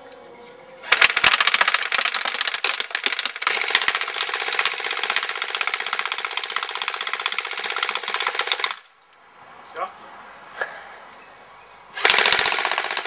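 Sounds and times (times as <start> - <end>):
airsoft gun rapid rattle: 0.8 - 8.9, 12.0 - 13.0.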